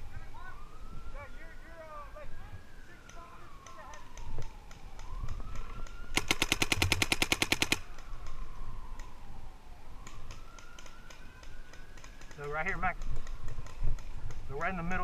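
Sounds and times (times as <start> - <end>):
distant siren wailing: 0.0 - 15.0
rapid paintball marker fire: 3.6 - 8.1, 10.0 - 14.5.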